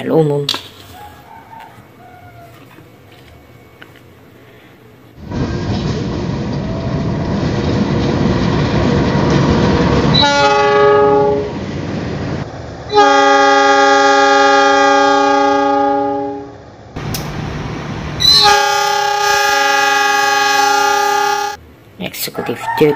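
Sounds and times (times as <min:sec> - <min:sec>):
train rumbling past: 0:01.6 - 0:22.7
train horn blasts: 0:10.1 - 0:11.6, 0:12.9 - 0:16.6, 0:18.2 - 0:21.6.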